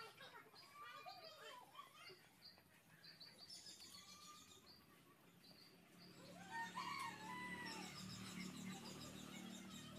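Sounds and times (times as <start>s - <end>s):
small birds chirping: 0.0s - 9.9s
rooster crowing: 6.4s - 8.1s.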